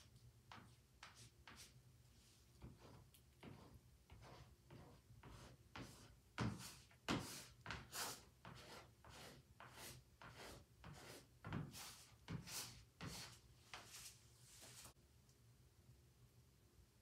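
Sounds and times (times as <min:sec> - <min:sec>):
sponge scrubbing paint on canvas: 0:02.6 - 0:15.0.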